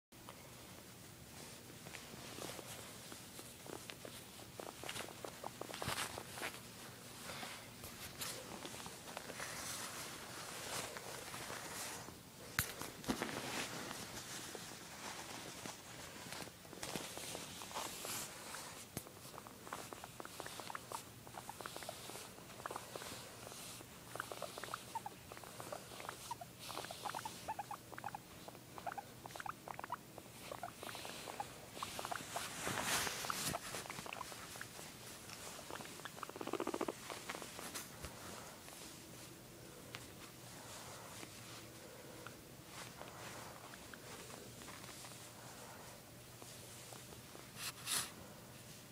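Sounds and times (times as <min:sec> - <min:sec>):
fur and fabric rustling on microphone: 0:00.4 - 0:27.6, 0:30.3 - 0:48.9
guinea pig squeaky chirps: 0:19.6 - 0:32.5, 0:33.2 - 0:34.8, 0:35.4 - 0:37.2.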